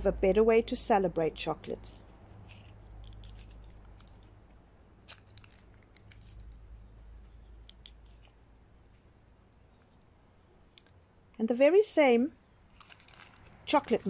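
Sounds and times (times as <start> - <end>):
low steady rumble: 0.0 - 14.0
paper cases crinkling: 1.9 - 4.4, 5.0 - 6.6, 12.7 - 14.0.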